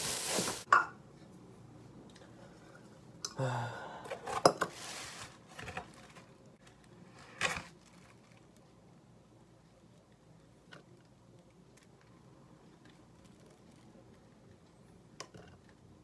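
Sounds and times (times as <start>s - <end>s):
plastic bag rustling: 0.0s - 0.7s, 4.7s - 8.6s, 12.6s - 14.2s.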